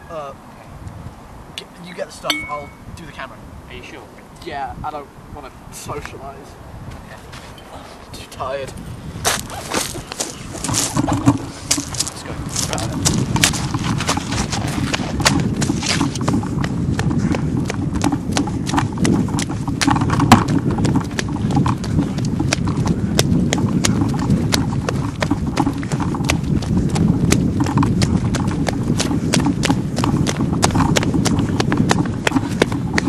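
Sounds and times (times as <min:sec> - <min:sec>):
wind on microphone: 0:00.0 - 0:33.0
camera handling rumble: 0:09.2 - 0:23.3
running footsteps on wet sand: 0:09.2 - 0:33.0.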